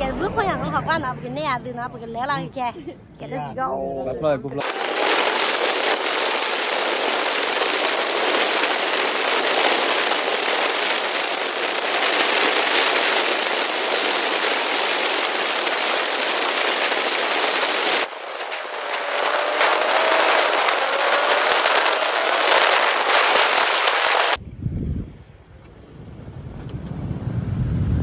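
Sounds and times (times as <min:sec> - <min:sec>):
wind rushing on microphone: 0:04.6 - 0:28.0.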